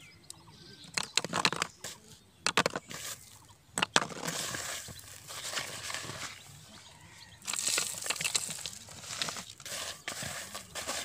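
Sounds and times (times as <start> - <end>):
plastic bottles crackling: 0.9 - 6.5, 7.4 - 11.0
dry bait rustling in plastic basin: 2.5 - 6.6, 7.4 - 11.0.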